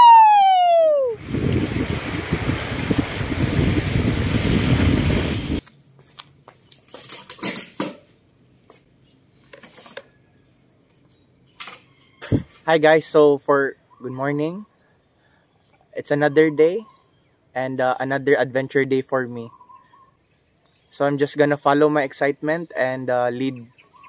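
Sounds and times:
man yelling: 0.0 - 1.2
wind on microphone: 0.0 - 5.6, 12.2 - 12.5.

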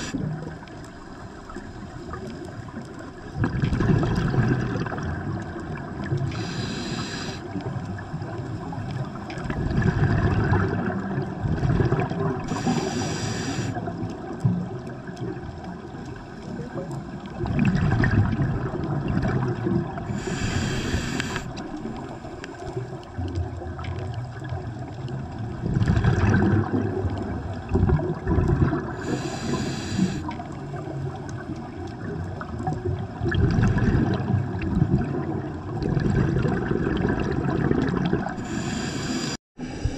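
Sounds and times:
gurgling exhaled bubbles: 0.0 - 39.9
regulator inhalation hiss: 6.3 - 7.5, 12.5 - 13.8, 20.1 - 21.6, 29.0 - 30.4, 38.4 - 39.9.

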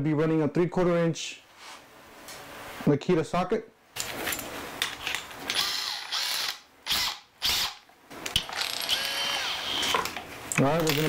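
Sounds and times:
drill motor spinning: 5.5 - 7.8, 8.4 - 10.1
drill chuck ratcheting clicks: 5.5 - 10.1.

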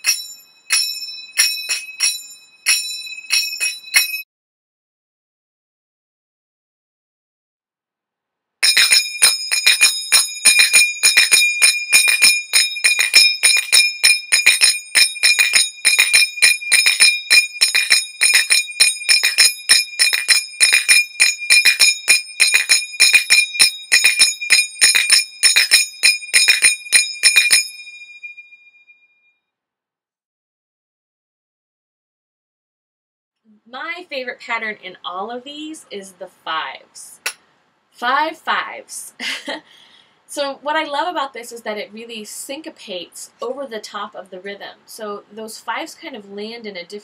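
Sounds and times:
finger cymbals ringing strikes: 0.0 - 4.2, 8.6 - 28.4.

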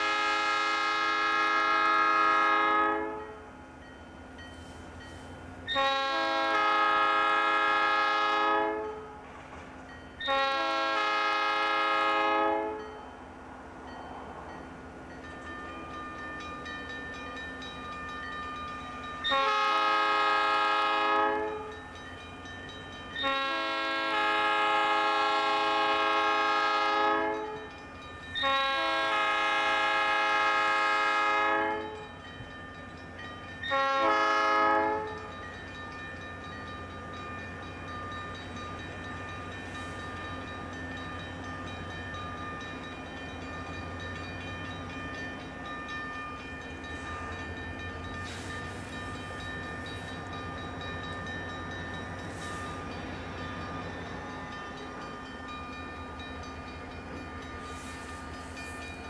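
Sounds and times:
locomotive air horn blasts: 0.0 - 3.4, 5.7 - 9.2, 10.2 - 12.9, 19.2 - 21.8, 23.2 - 27.7, 28.4 - 32.1, 33.7 - 35.3
train running: 0.0 - 59.0.

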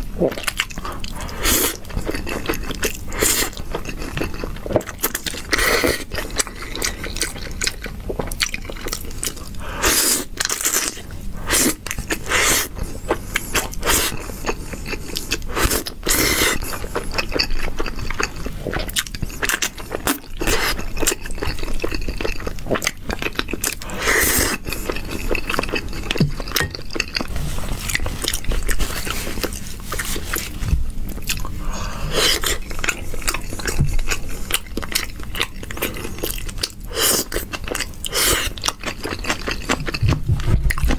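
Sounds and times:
wet chewing and mouth smacks: 0.3 - 9.6, 11.6 - 40.9.

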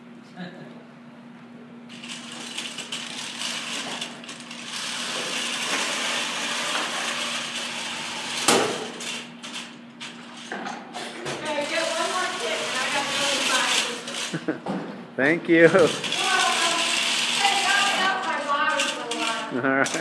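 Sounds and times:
robot drivetrain running: 11.7 - 14.4, 15.6 - 19.5.

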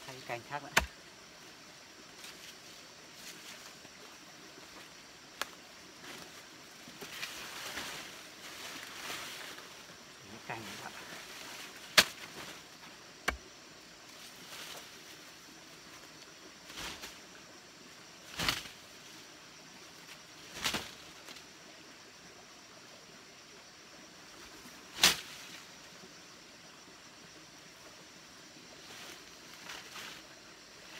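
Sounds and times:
branches smacking: 11.8 - 12.6, 18.3 - 18.8, 25.0 - 25.4.

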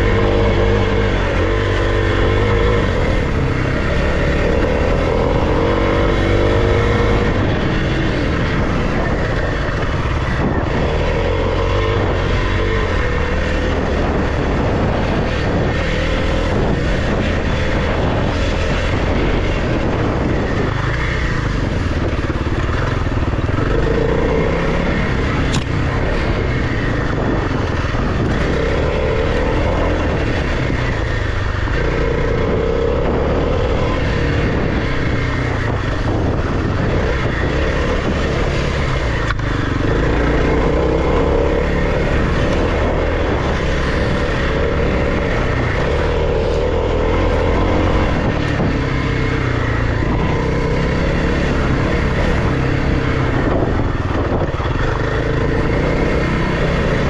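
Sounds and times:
dirt bike engine revving: 0.0 - 57.0
wind noise: 0.0 - 57.0
sharp tick: 25.5 - 25.7.

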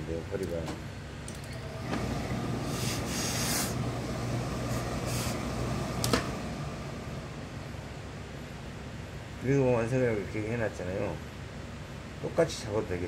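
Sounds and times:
steady low hum: 0.0 - 13.0
steam iron hissing: 1.6 - 7.4.

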